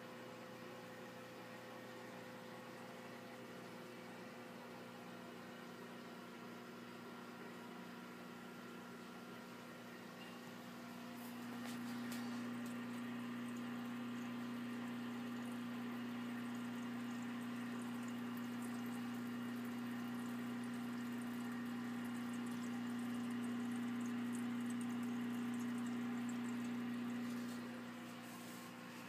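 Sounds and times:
aquarium air pump humming: 0.0s - 29.0s
water bubbling: 12.4s - 28.0s.

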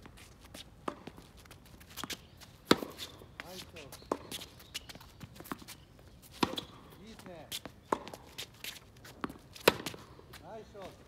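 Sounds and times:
tennis shoes squeaking on court: 0.0s - 11.0s
tennis ball bouncing: 0.8s - 1.2s, 1.9s - 10.3s
rackets striking tennis ball: 1.9s - 10.2s.

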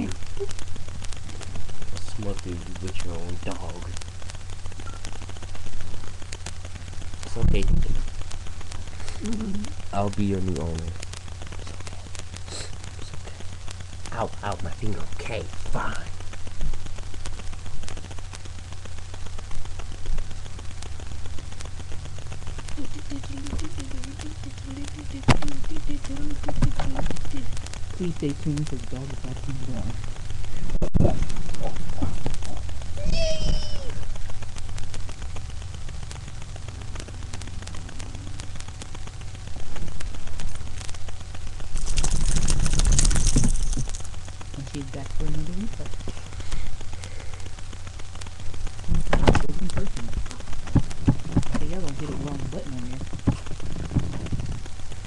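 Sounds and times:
low electrical hum: 0.0s - 55.0s
microphone handling clicks and rubbing: 25.2s - 28.0s, 36.6s - 44.5s, 45.2s - 55.0s.

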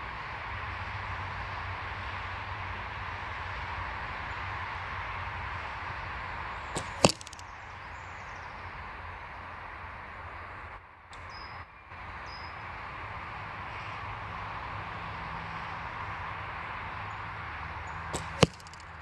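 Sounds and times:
arrow hitting foam target: 6.8s - 7.4s, 18.2s - 19.0s
bowstring snap: 6.8s - 7.5s, 18.2s - 18.9s.

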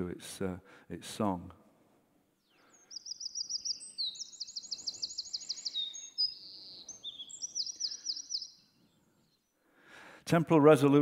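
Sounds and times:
bird song over loudspeakers: 2.5s - 9.4s.

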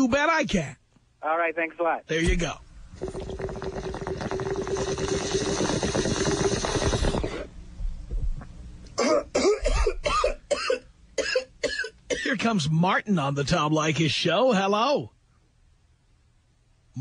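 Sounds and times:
water bubbling in a bong: 2.9s - 7.5s
person coughing: 9.0s - 12.4s.

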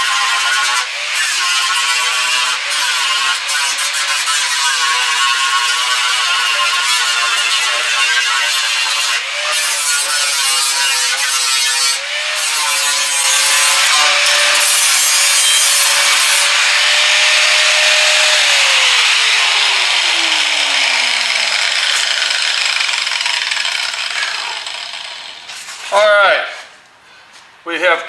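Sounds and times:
angle grinder grinding metal: 0.0s - 25.9s
grinder disc spinning down: 13.2s - 25.7s.

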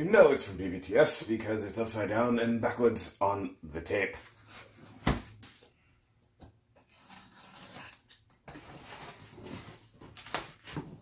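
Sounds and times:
tape and cardboard scratching: 6.8s - 10.9s.

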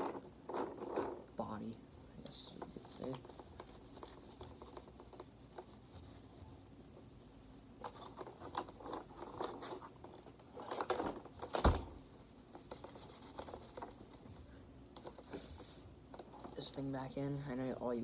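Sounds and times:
cloth rubbing on plastic: 2.3s - 6.7s, 12.0s - 15.8s.

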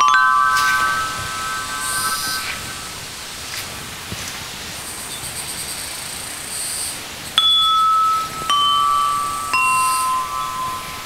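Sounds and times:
chime bars struck with mallet: 0.0s - 3.4s, 7.4s - 11.0s
shimmer of small chimes: 0.0s - 3.8s, 7.4s - 11.0s.

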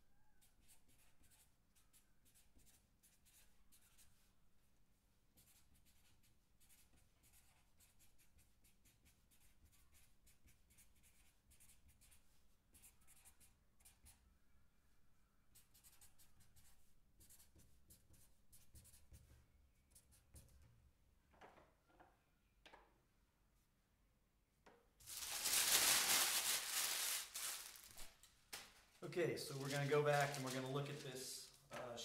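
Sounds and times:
marker scratching on paper: 0.4s - 4.3s, 5.3s - 14.3s, 15.5s - 20.7s.

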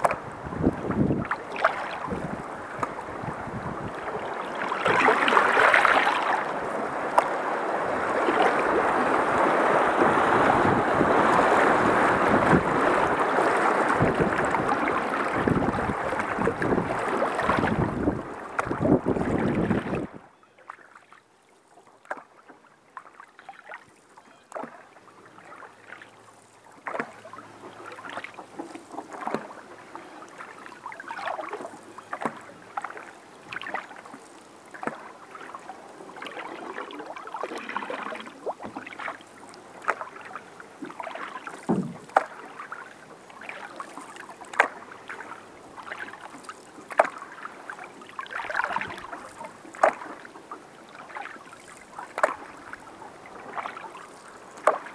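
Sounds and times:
paddle dipping through water: 0.0s - 54.9s
small splashes and drips: 4.6s - 6.4s, 20.7s - 50.3s, 50.9s - 52.8s, 53.4s - 54.9s
dull thump: 41.7s - 42.3s.

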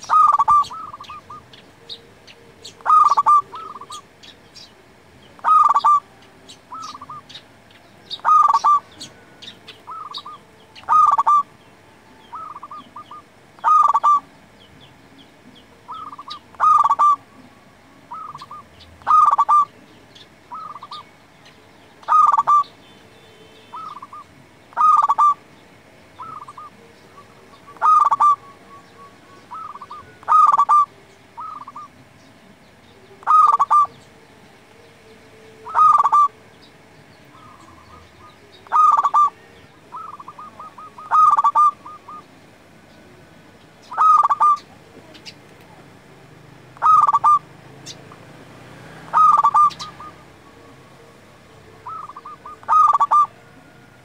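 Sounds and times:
dove cooing: 0.0s - 11.6s, 12.2s - 21.1s, 22.0s - 22.8s, 23.7s - 25.5s, 26.1s - 32.2s, 32.8s - 36.6s, 37.2s - 45.4s, 46.7s - 54.0s
small birds chirping: 0.0s - 54.0s.

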